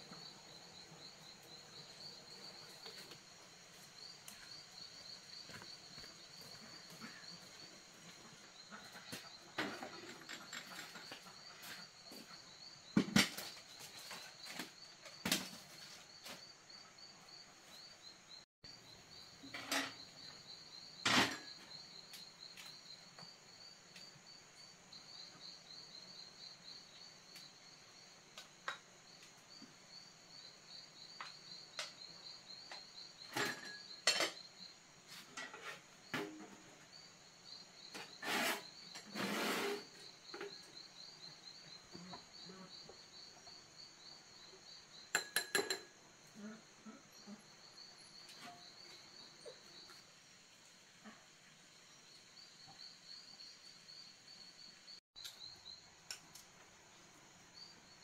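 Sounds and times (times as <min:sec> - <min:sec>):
night insects chirping: 0:00.0 - 0:58.0
crockery and pot clinking: 0:33.3 - 0:34.4, 0:45.1 - 0:46.0.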